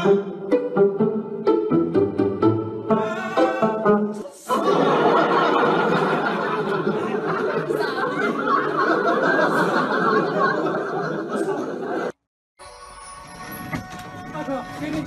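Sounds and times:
audience laughter: 4.4s - 12.2s.

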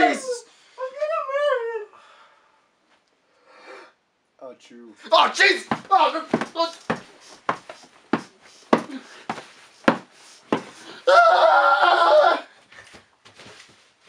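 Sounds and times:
sharp thuds on blanket: 5.7s - 10.8s
person crying out: 11.0s - 12.5s.

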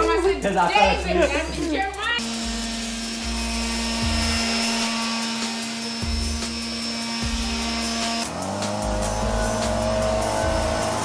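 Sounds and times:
background music: 0.0s - 11.0s
electric sander whine: 2.2s - 11.0s.

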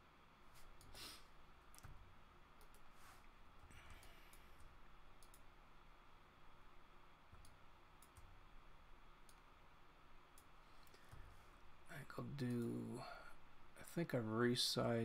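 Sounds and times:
faint computer mouse clicks: 3.9s - 5.5s.

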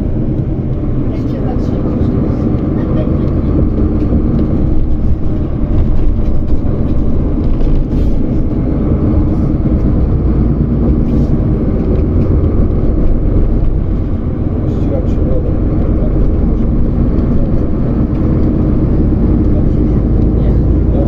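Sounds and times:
road noise: 0.0s - 21.0s
vehicle engine rumble: 0.0s - 21.0s.

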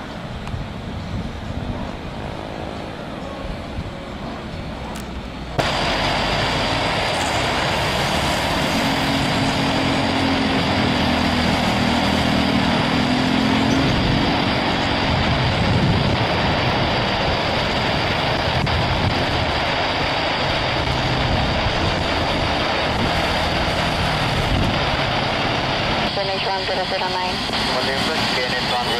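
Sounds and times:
distant jet: 0.0s - 28.9s
jet engines at takeoff: 0.0s - 28.9s.

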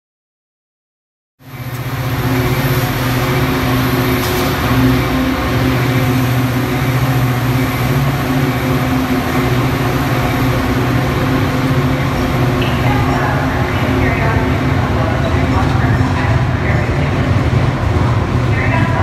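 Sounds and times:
diesel locomotive engine drone: 1.4s - 19.0s
train cars rumbling by: 1.4s - 19.0s.

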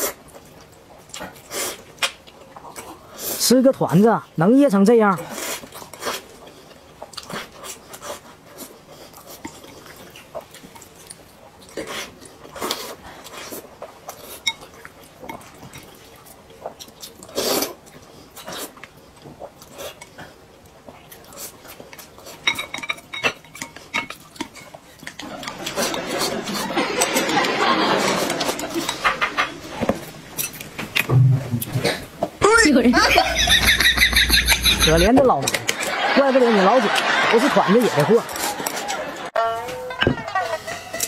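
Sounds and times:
chopsticks scraping glass bowl: 28.0s - 30.9s.

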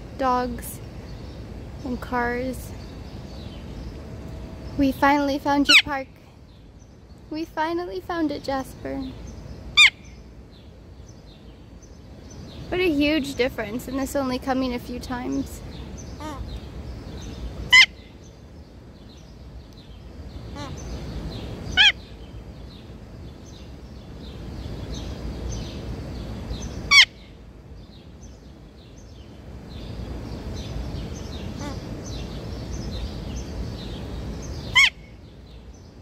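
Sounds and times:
low steady rumble: 0.0s - 36.0s
small birds chirping: 0.0s - 36.0s
parrot squawking: 9.8s - 10.1s, 16.2s - 16.5s, 17.7s - 18.0s, 20.5s - 20.8s, 21.7s - 22.0s, 26.9s - 27.1s, 31.6s - 31.9s, 34.7s - 35.0s.

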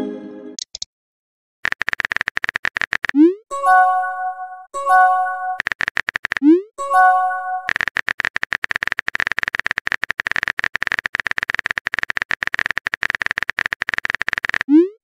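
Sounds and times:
rapid typing clicks: 1.6s - 3.3s, 5.6s - 6.6s, 7.6s - 14.8s.

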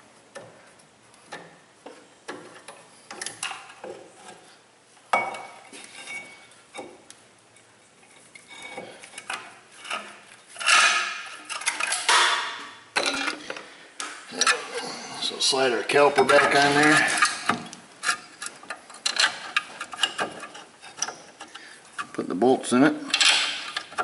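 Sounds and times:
metal clinks and scrapes: 5.2s - 6.9s, 7.5s - 13.6s, 14.3s - 22.2s.

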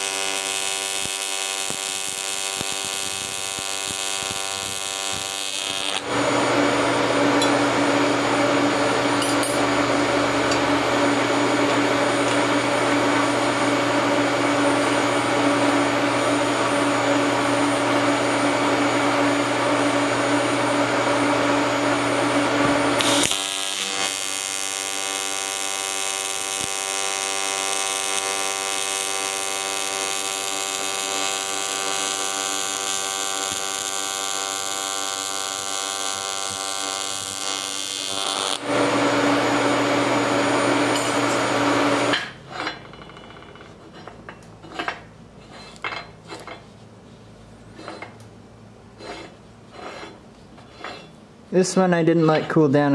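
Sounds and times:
welding arc buzzing: 0.0s - 42.2s.

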